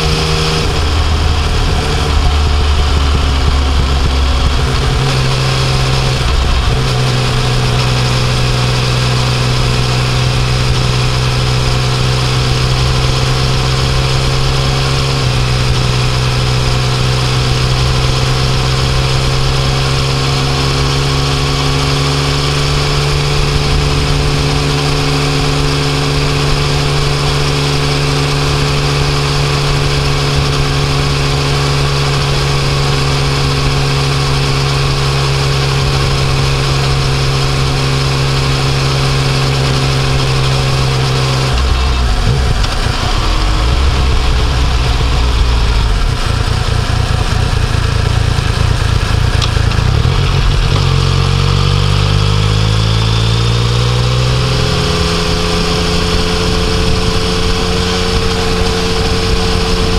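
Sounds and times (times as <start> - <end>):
wind rush on microphone: 0.0 - 17.0, 54.5 - 59.9
motorcycle engine pulling: 0.0 - 59.9.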